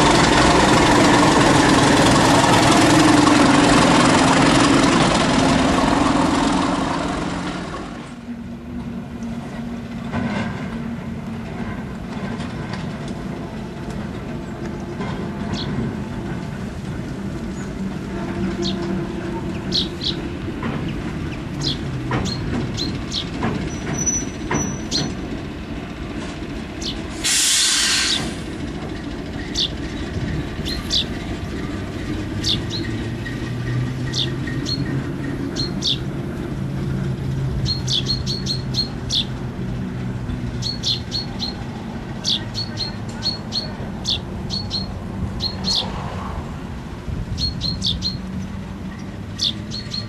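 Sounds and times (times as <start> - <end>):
diesel locomotive engine running: 0.0 - 50.0
birds chirping: 14.0 - 26.0, 26.7 - 27.1, 29.0 - 36.5, 37.5 - 46.1, 47.3 - 50.0
loud hiss: 27.0 - 28.6.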